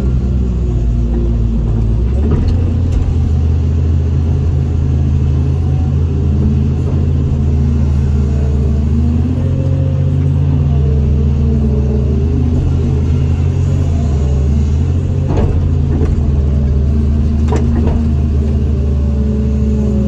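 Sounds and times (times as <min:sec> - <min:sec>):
diesel excavator engine running: 0:00.0 - 0:20.0.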